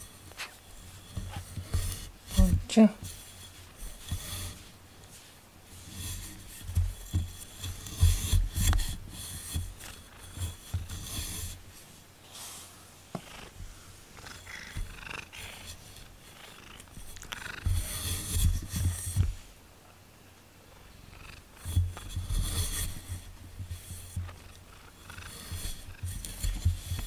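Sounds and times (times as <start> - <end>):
fur rubbing microphone: 0.0 - 11.8, 13.2 - 19.5, 21.2 - 27.0
cat purring: 13.2 - 18.9, 20.7 - 27.0.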